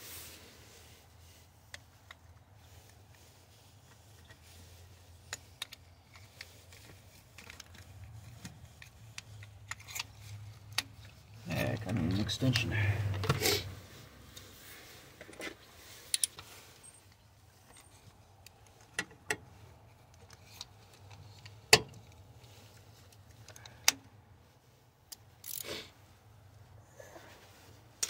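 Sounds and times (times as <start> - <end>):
metal tools clinking: 25.4 - 25.8.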